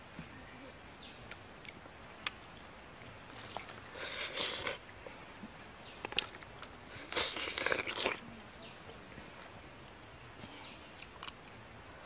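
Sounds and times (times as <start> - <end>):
noisy slurp: 3.4 - 4.8, 6.9 - 8.2.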